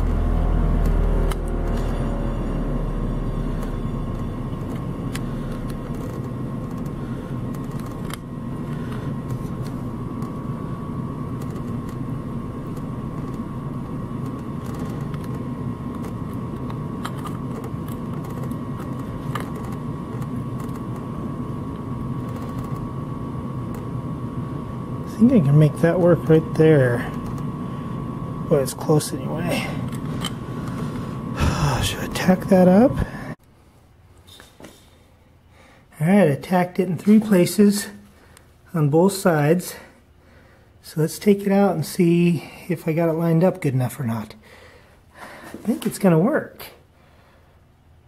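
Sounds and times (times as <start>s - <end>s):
mechanical whirring drone: 0.0s - 33.4s.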